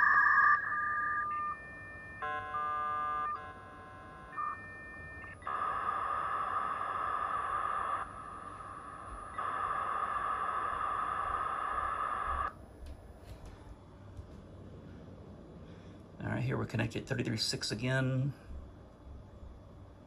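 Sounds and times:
loud hissing modem noise: 0.0s - 2.2s, 2.8s - 12.7s, 16.2s - 18.5s
modem tones: 0.0s - 12.6s.

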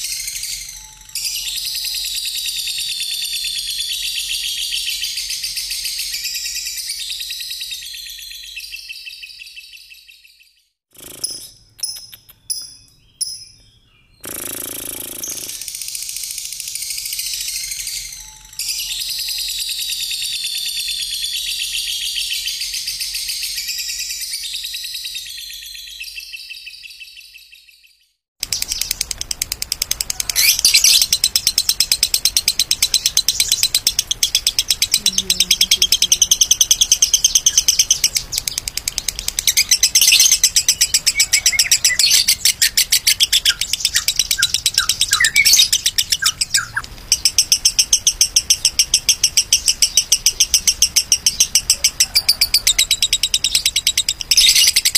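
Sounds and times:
bird warbling song: 0.0s - 54.9s
rapid chattering bird trill: 11.0s - 23.8s, 28.4s - 54.9s.

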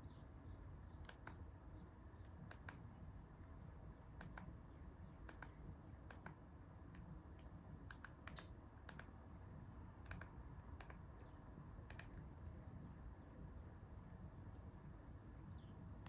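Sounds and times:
remote control button clicks: 5.2s - 6.4s.

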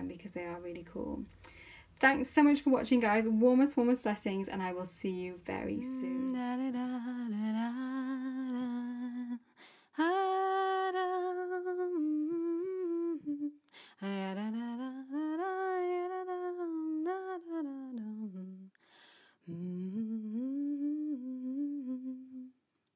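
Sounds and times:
person humming a slow tune: 5.8s - 9.4s, 10.0s - 18.8s, 19.4s - 22.6s.

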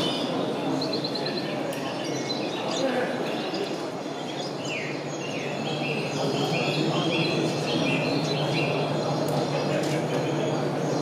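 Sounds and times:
exhibition hall hubbub: 0.0s - 11.0s.

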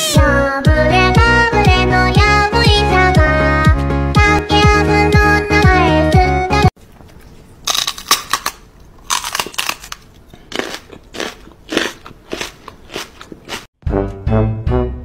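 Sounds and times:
music: 0.0s - 6.8s, 13.8s - 15.0s
crunchy mouth noises: 7.1s - 13.7s.

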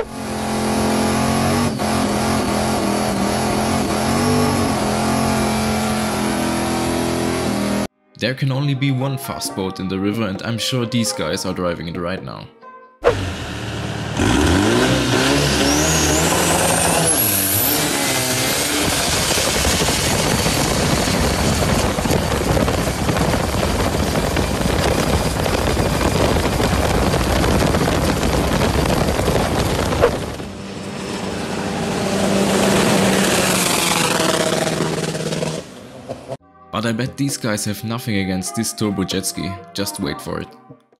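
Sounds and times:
boat engine revving: 0.0s - 7.9s, 13.0s - 36.4s.

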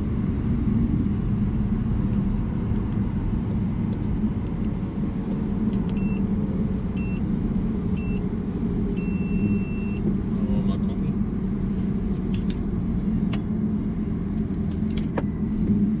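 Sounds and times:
car engine and tyre rumble: 0.0s - 16.0s
short timer beeps: 5.9s - 6.2s, 7.0s - 7.2s, 8.0s - 8.2s, 9.0s - 10.0s.

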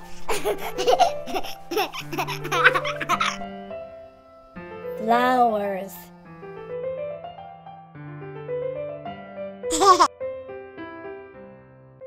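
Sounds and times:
gentle keyboard music: 0.0s - 12.0s
baby laughing: 0.2s - 3.4s, 9.7s - 10.1s.

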